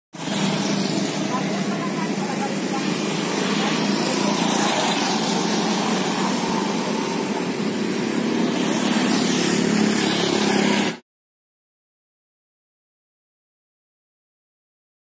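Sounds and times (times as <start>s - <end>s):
wind and road noise: 0.1s - 11.0s
motorbike engine hum: 0.2s - 11.0s.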